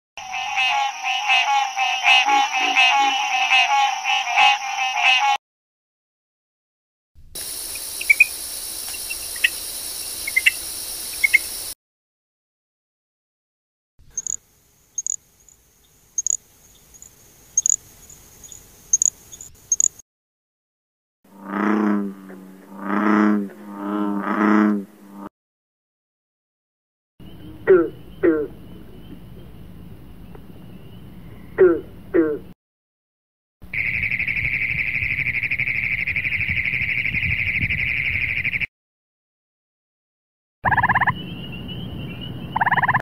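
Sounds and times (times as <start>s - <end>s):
frog chirping: 0.2s - 5.4s, 7.6s - 11.8s, 14.1s - 15.2s, 16.2s - 20.0s, 33.7s - 38.7s, 40.6s - 43.0s
toad trilling: 7.8s - 9.6s, 10.2s - 11.5s, 14.1s - 14.4s, 15.0s - 15.2s, 16.2s - 16.4s, 17.0s - 17.8s, 18.4s - 20.0s, 40.6s - 41.2s, 42.6s - 43.0s.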